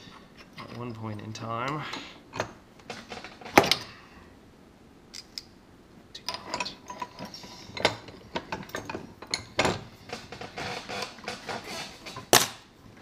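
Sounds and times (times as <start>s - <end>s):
bench vise metal clicks and clanks: 6.3s - 10.4s.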